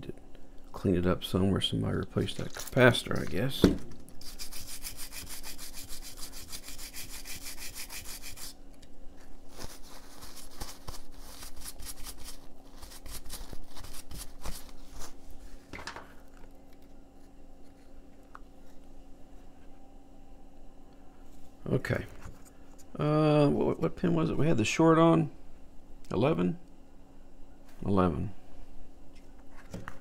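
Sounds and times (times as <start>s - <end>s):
brush scrubbing circuit board: 4.2s - 8.6s, 9.6s - 14.7s.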